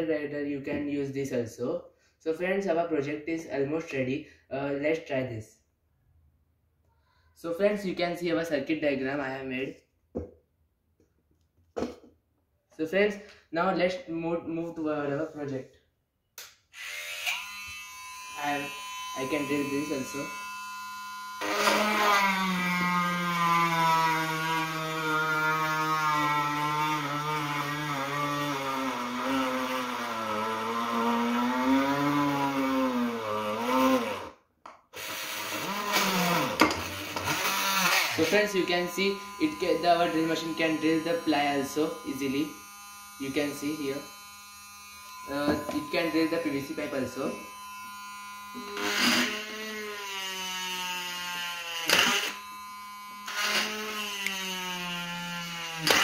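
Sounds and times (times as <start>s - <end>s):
drill whining into plywood: 16.7s - 56.0s.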